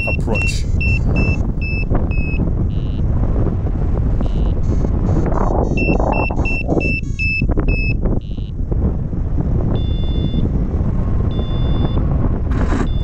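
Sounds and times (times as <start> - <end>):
variometer beeping: 0.0 - 3.1, 4.1 - 8.6, 9.7 - 10.5, 11.2 - 13.0
strong wind buffeting microphone: 0.0 - 13.0.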